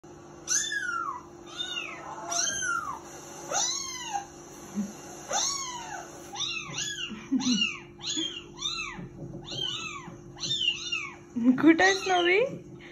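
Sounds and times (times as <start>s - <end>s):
kitten mewing: 0.5s - 4.3s, 5.3s - 11.2s.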